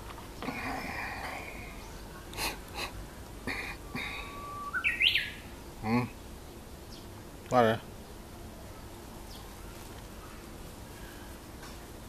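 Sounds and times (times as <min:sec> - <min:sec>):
bird wavering call: 0:03.9 - 0:05.4
bird singing whistled song: 0:04.3 - 0:05.4.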